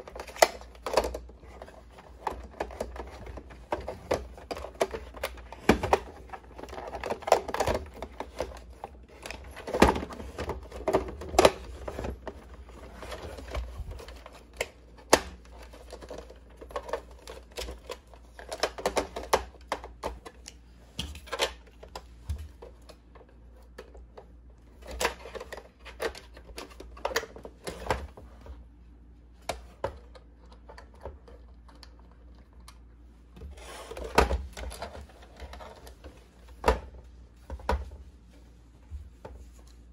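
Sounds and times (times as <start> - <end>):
plastic toy clicking and rattling: 0.0 - 20.3.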